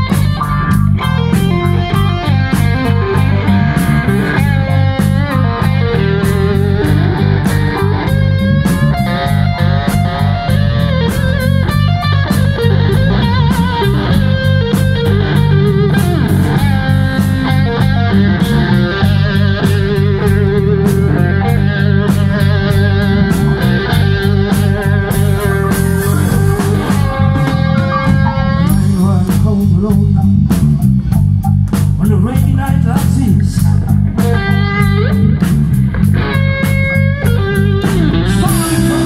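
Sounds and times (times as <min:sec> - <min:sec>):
bass: 0:00.0 - 0:39.0
drum beat with cymbals: 0:00.0 - 0:39.0
electric guitar lead line: 0:00.0 - 0:39.0.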